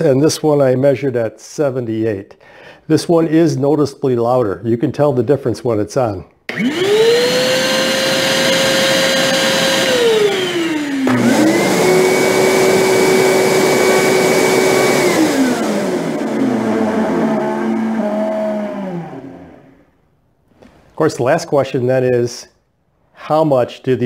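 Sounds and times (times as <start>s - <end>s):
shop vacuum motor whining: 6.5s - 19.9s
shop vacuum lower whine: 6.5s - 20.0s.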